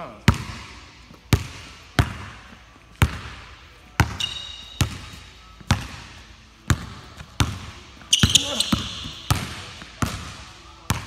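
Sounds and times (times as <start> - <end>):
basketball bouncing on hard floor: 4.0 - 6.0, 6.7 - 11.0
short high squeak: 4.2 - 4.8.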